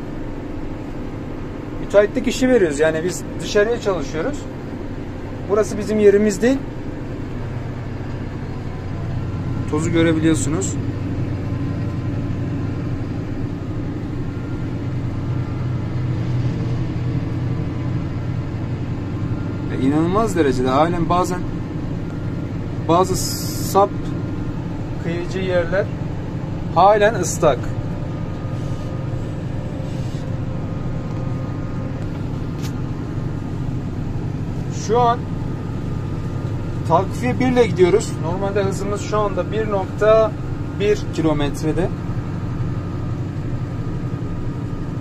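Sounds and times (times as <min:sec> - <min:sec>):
faint steady whine: 0:00.0 - 0:45.0
tractor engine low drone: 0:00.0 - 0:45.0.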